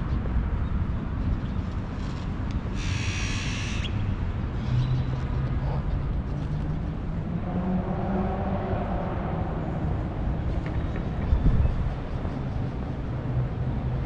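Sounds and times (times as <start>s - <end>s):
traffic rumble: 0.0s - 14.0s
engine hum rising in pitch: 6.5s - 10.4s.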